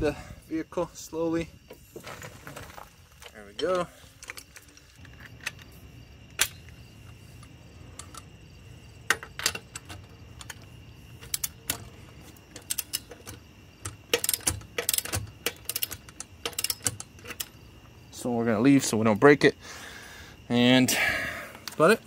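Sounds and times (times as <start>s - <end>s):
sharp metal clicks and clinks: 9.1s - 17.6s
ratchet clicking: 12.5s - 17.6s.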